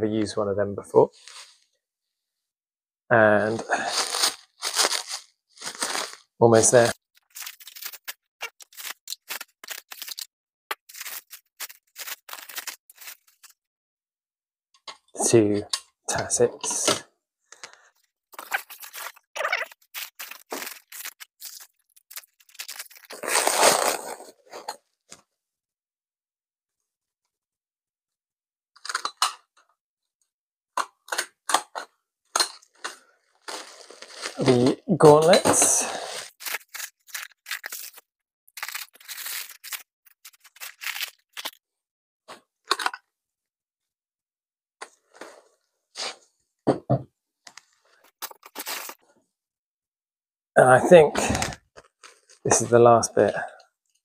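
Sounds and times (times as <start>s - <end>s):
bubble wrap and paper crinkling: 3.8s - 13.6s, 17.6s - 24.7s, 32.7s - 41.6s, 47.8s - 49.0s, 51.2s - 52.4s.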